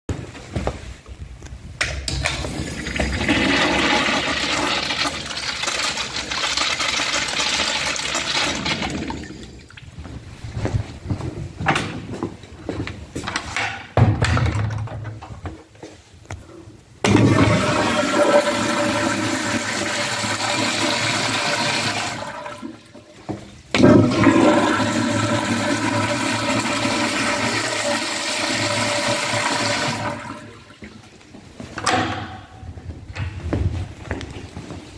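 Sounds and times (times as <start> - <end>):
toilet flushing: 2.1 - 9.8, 17.0 - 30.9.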